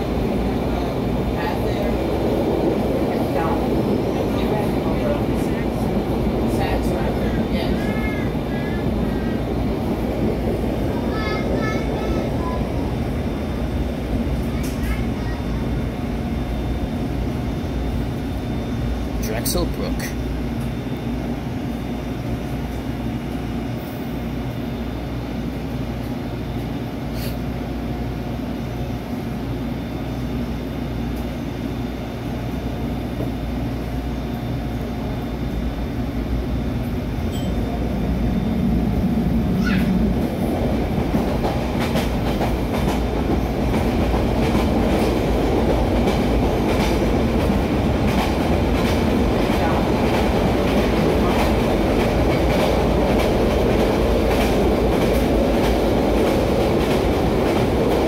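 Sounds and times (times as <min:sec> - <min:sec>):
trolley hum with faint whine: 0:00.0 - 0:58.0.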